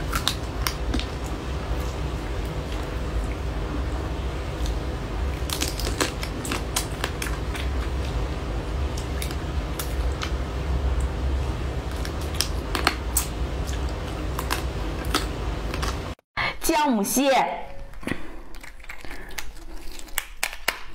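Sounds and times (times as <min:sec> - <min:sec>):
low hum: 0:00.0 - 0:16.2
wet sucking and chewing: 0:17.9 - 0:20.9
sharp irregular clicks and crackles: 0:18.5 - 0:20.9.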